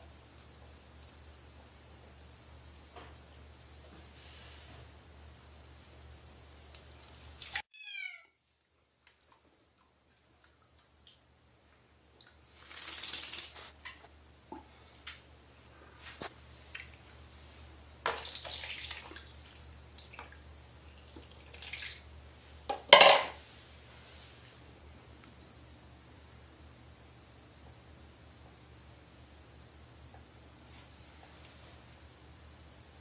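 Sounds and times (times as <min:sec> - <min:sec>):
water splashing and sloshing: 0:18.0 - 0:22.1.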